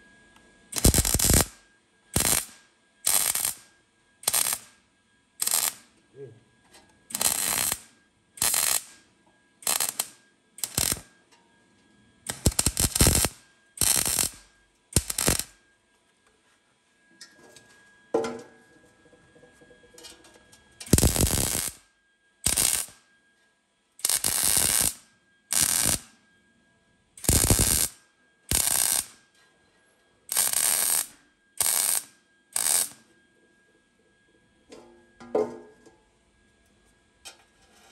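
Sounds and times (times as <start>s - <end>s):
welder arc bursts: 0.7s - 1.6s, 2.2s - 4.8s, 5.4s - 5.9s, 7.1s - 9.0s, 9.6s - 11.0s, 12.3s - 15.6s, 20.8s - 21.8s, 22.4s - 23.0s, 24.0s - 26.1s, 27.2s - 29.2s, 30.3s - 33.0s.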